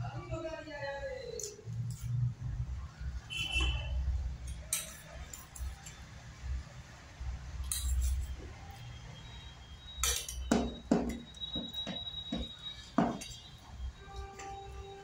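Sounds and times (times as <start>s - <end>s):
metal spoon clinking on bowl: 10.0s - 11.7s.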